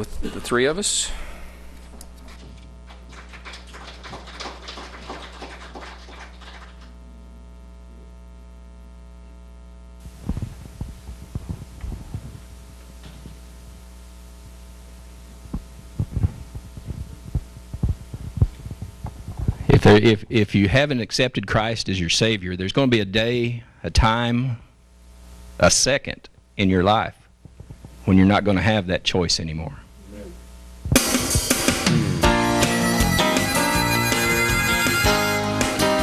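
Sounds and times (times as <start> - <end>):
electrical hum: 0.0 - 36.0
microphones being handled: 1.6 - 3.1, 10.0 - 13.8, 15.2 - 20.1, 27.3 - 28.1
knocks and rustles of people moving: 1.7 - 3.2, 10.0 - 13.6, 15.3 - 19.8, 27.4 - 28.1.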